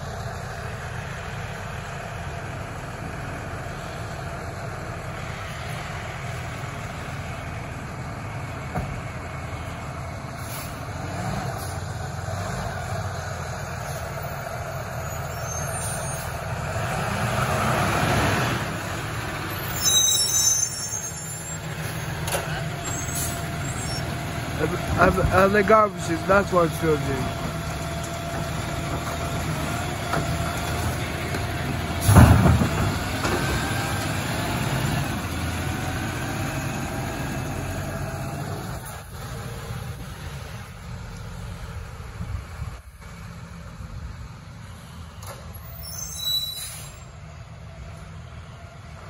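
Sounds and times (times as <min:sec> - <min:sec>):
garbage truck diesel engine: 0:00.0 - 0:49.0
high-pitched brake squeal: 0:14.9 - 0:16.4, 0:19.5 - 0:22.1, 0:22.8 - 0:24.1, 0:45.5 - 0:47.2.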